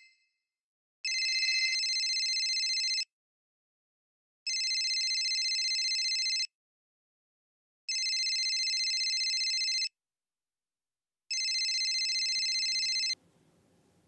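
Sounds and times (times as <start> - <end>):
phone electronic trilling ringtone: 1.1 - 3.0, 11.3 - 13.2
faint room hum: 13.2 - 14.0.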